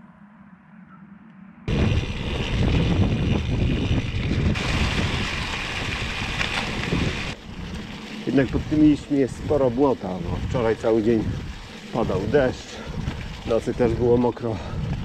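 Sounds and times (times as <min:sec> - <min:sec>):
wind rushing over microphone: 0:01.6 - 0:15.0
bike tyres rolling over leaves: 0:01.7 - 0:15.0.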